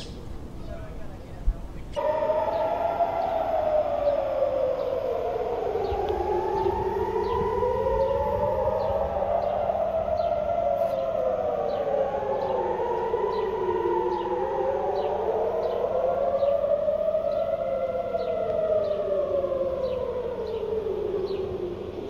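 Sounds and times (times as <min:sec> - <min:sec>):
sirens wailing: 0:00.0 - 0:22.0.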